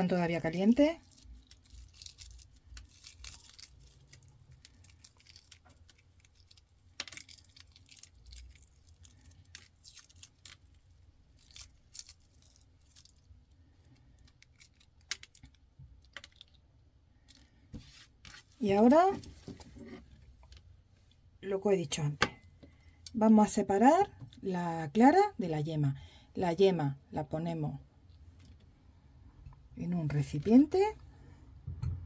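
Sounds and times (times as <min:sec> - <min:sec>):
egg shells cracking and peeling: 0:00.5 - 0:17.7.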